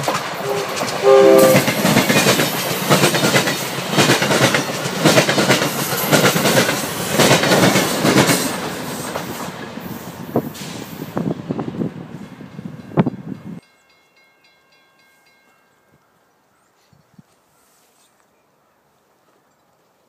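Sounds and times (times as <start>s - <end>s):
train wheels clicking over rail joints: 0.0s - 11.6s.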